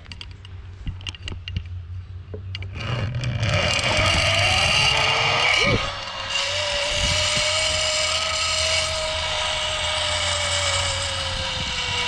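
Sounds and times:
zip line pulley whirring: 2.6 - 12.0.

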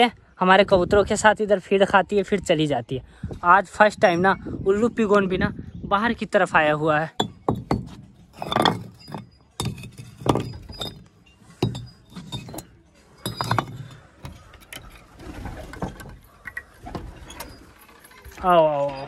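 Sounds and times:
hard objects clinking: 7.1 - 19.0.

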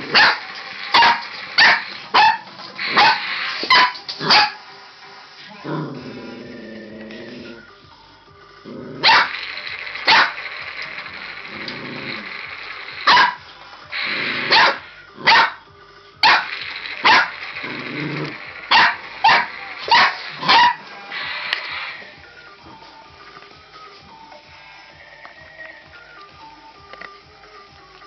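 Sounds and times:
puppy barking: 0.1 - 4.6, 9.0 - 9.4, 10.1 - 10.4, 13.1 - 13.4, 14.4 - 15.6, 16.2 - 17.4, 18.7 - 20.9
low growling: 5.4 - 7.7, 8.6 - 9.0, 11.5 - 12.4, 17.6 - 19.1.

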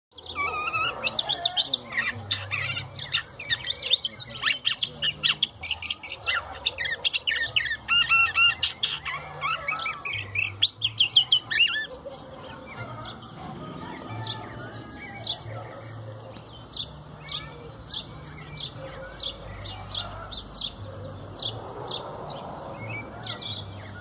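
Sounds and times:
bird singing whistled chattering song: 0.2 - 11.9.

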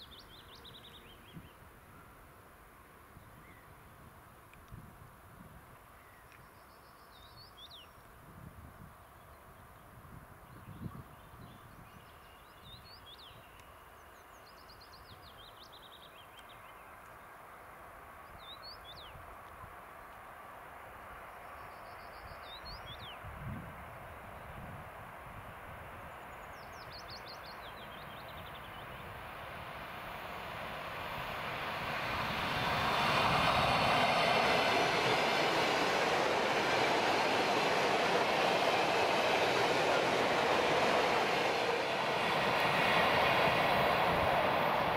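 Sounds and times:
distant electric train rumble: 24.9 - 44.9.

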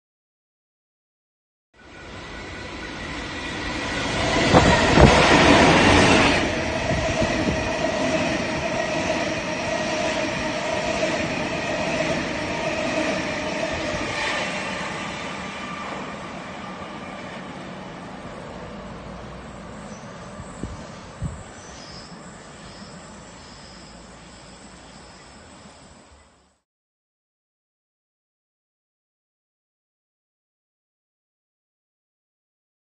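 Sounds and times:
electric train passing at speed: 1.8 - 26.6.

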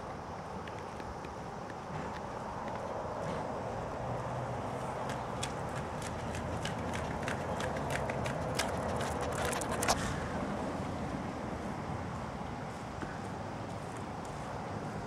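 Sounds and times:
steady outdoor hum: 0.0 - 15.0
light clicking dog steps: 5.1 - 10.0.

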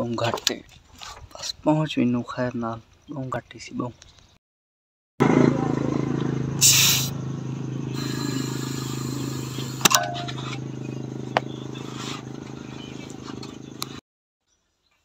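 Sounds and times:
air compressor running: 5.2 - 14.0
short hiss of air: 6.6 - 7.2.

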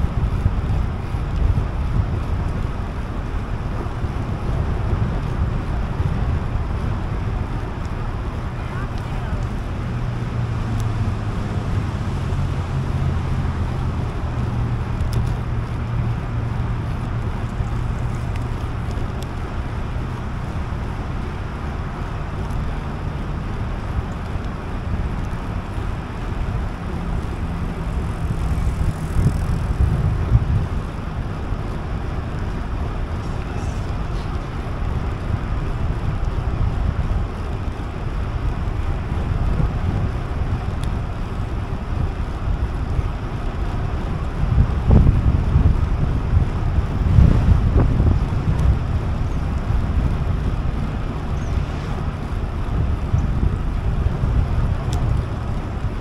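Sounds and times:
wind buffeting microphone: 0.0 - 56.0.

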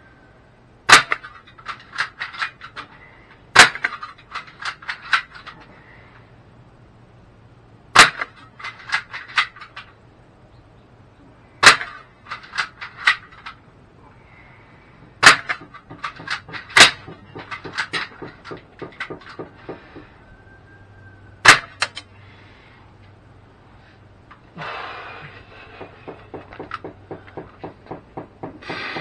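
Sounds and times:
bb gun sharp cracks: 0.9 - 2.6, 3.5 - 5.3, 7.9 - 9.8, 11.6 - 13.4, 15.2 - 19.8, 21.4 - 22.1.

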